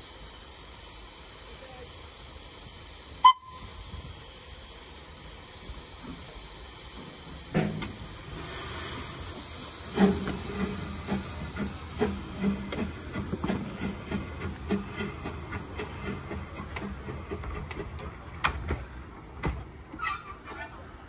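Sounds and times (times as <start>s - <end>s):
steam hissing: 0.0s - 19.4s
steam locomotive exhaust chuffs: 0.0s - 19.8s
steam whistle blast: 3.2s - 3.8s.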